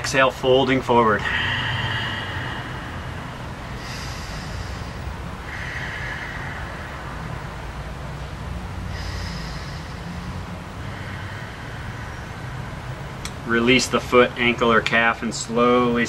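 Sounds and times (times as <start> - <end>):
low room hum: 0.0 - 16.0
person breathing through nose: 1.1 - 13.5.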